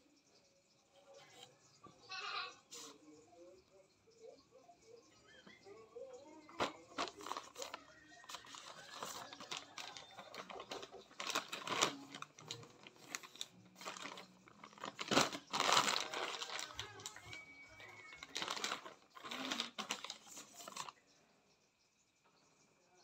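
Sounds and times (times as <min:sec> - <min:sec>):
plastic packaging crinkling: 0:06.4 - 0:21.0.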